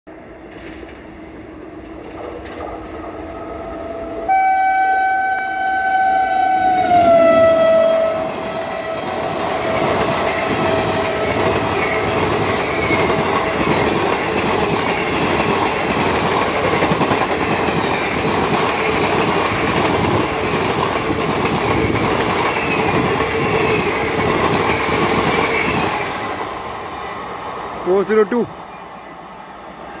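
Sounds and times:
train coaches rushing by: 0.3 - 4.3, 6.1 - 30.0
locomotive horn blast: 3.5 - 9.2.

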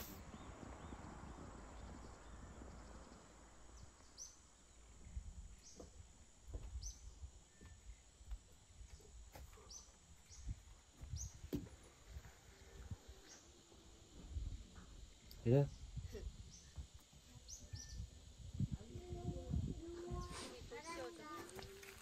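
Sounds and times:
small bird chirping: 0.0 - 6.0, 14.8 - 21.9.

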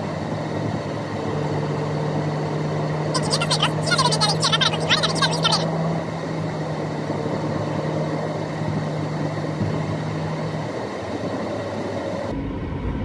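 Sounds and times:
car engine and road noise: 0.0 - 13.0
low hum: 12.2 - 13.0.

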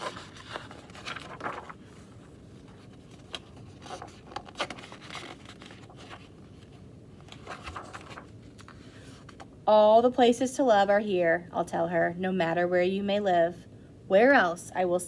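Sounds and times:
book pages rustling: 0.0 - 9.6
page turning: 0.0 - 9.6.

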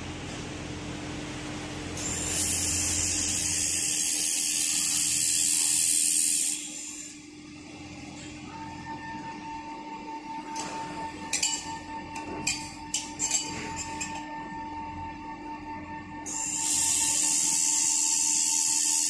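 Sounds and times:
machine hum: 0.0 - 19.0
laser welder hissing: 2.0 - 7.2, 16.3 - 19.0.

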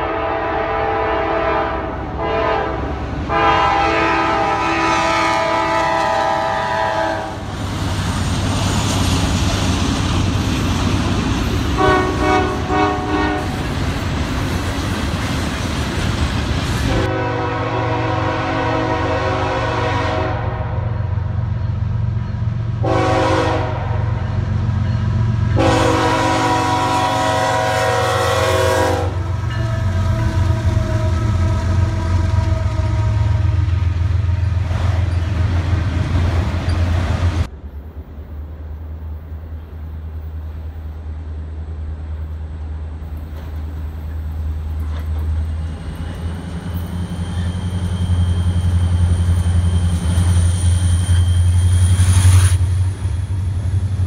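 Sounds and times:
locomotive horn blasts: 0.0 - 7.4, 11.8 - 13.6, 16.9 - 21.1, 22.8 - 24.3, 25.5 - 34.8
passing train rumble: 0.0 - 54.0
wheels clacking on rails: 7.4 - 17.1, 29.1 - 40.9, 43.0 - 54.0.

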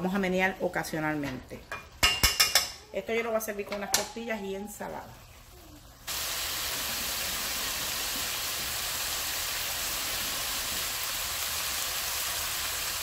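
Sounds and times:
meat sizzling in a pot: 5.3 - 13.0.

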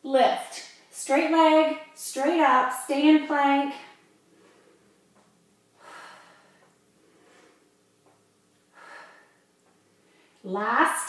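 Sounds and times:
woman's hard breaths of exertion: 5.8 - 7.6, 8.7 - 10.4.

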